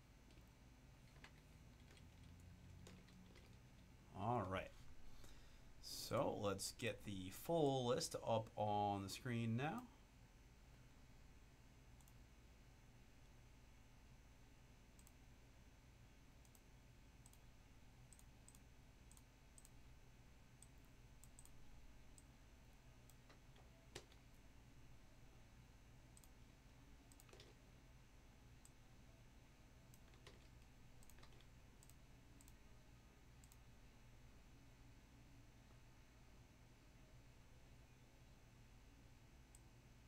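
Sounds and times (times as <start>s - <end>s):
low steady hum: 0.0s - 40.0s
mouse and keyboard clicks: 27.1s - 27.6s, 29.9s - 32.6s.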